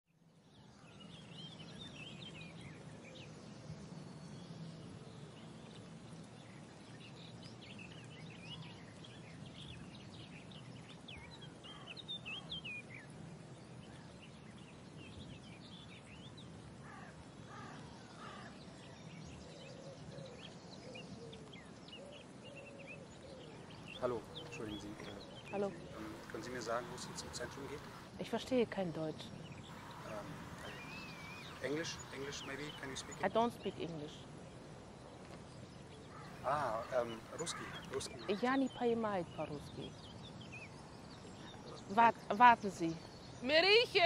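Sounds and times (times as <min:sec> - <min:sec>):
small birds chirping and singing: 0:00.2 - 0:44.0
harsh low bird calls: 0:15.0 - 0:34.2, 0:35.8 - 0:44.0
steady low hum: 0:23.5 - 0:34.2, 0:36.2 - 0:38.5.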